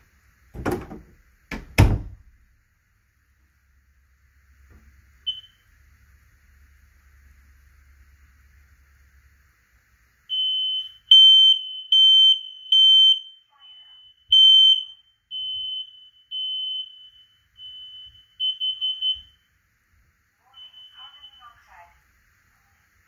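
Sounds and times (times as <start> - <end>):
smoke alarm beeping: 5.2 - 5.7, 10.3 - 19.6, 20.4 - 21.8.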